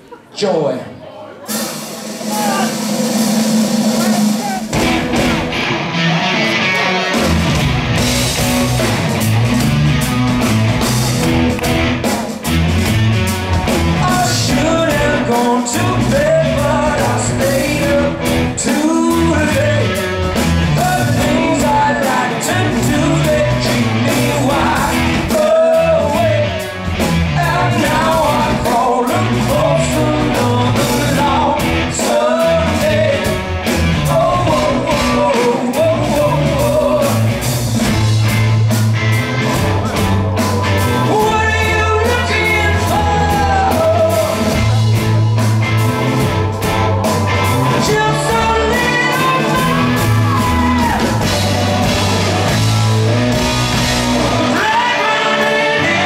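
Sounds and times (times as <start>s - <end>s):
drums: 1.3s - 56.0s
bass guitar: 1.5s - 56.0s
electric guitar: 3.1s - 56.0s
man singing: 14.0s - 26.7s, 27.3s - 37.4s, 41.0s - 44.8s, 47.6s - 51.3s, 54.2s - 56.0s.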